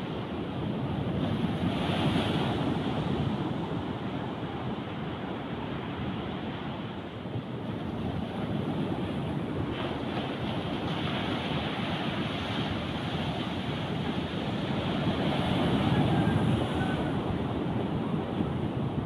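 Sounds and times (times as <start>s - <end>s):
wind buffeting microphone: 0.0s - 19.0s
surf breaking on beach: 7.8s - 19.0s.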